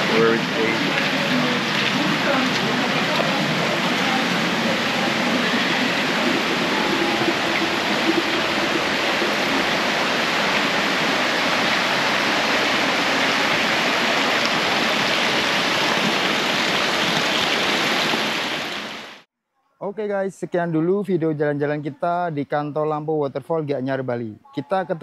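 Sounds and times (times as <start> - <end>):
stream running over rocks: 0.0 - 19.2
waterfall rushing: 0.0 - 19.2.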